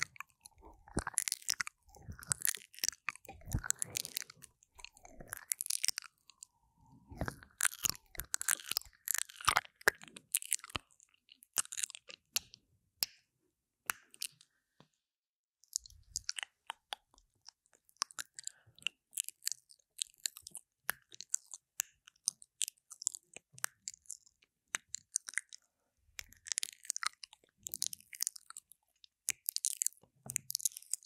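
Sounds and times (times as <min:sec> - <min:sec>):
wet mouth clicks and smacks: 0:00.0 - 0:12.5, 0:15.7 - 0:25.6.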